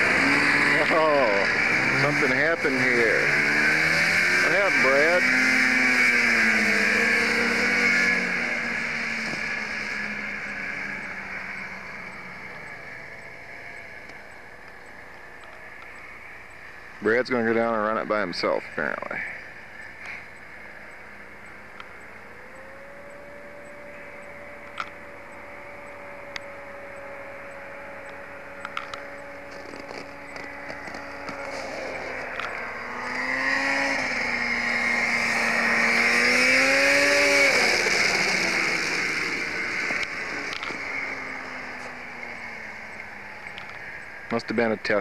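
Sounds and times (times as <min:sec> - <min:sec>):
snowmobile engines at speed: 0:00.0 - 0:45.0
tape hiss: 0:00.0 - 0:45.0
small clicks: 0:24.6 - 0:25.0, 0:28.0 - 0:32.6, 0:39.9 - 0:40.8, 0:42.9 - 0:43.8.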